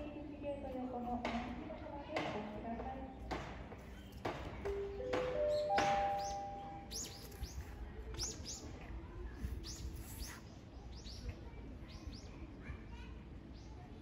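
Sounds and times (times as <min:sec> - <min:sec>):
small birds chirping: 0:03.0 - 0:14.0.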